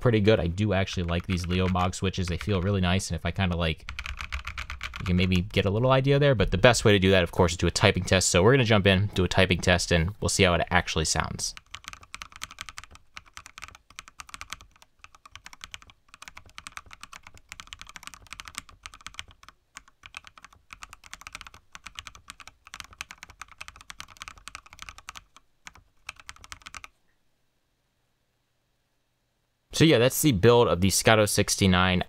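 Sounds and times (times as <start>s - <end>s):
mechanical keyboard typing: 0.9s - 2.8s, 3.8s - 5.6s, 11.5s - 26.9s.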